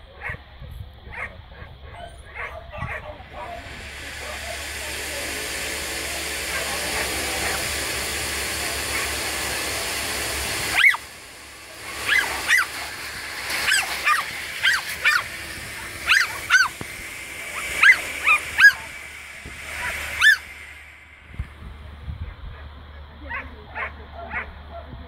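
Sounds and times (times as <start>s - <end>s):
dog yelping: 1.1s - 3.6s, 10.7s - 11.1s, 12.0s - 12.9s, 13.6s - 16.8s, 17.6s - 18.9s, 19.8s - 20.5s, 22.5s - 24.9s
steady hiss: 3.2s - 23.0s.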